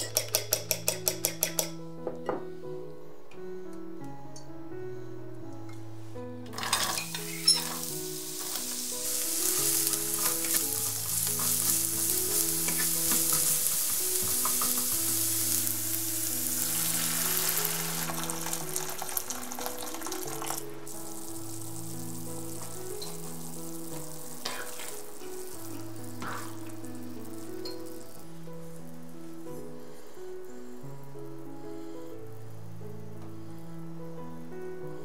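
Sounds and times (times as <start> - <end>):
soft background music: 0.0 - 35.0
spatula scraping a pan: 6.6 - 18.6, 24.4 - 26.8
vegetables sizzling in hot oil: 6.6 - 31.1.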